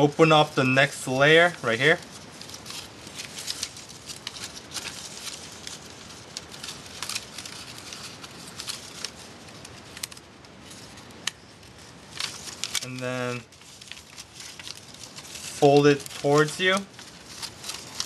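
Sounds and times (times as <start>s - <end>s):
paper rustling and crackling: 0.0s - 18.0s.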